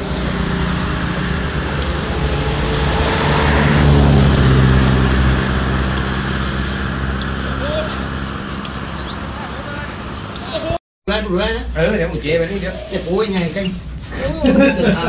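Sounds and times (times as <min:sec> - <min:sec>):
vehicle engine passing: 0:00.0 - 0:10.7.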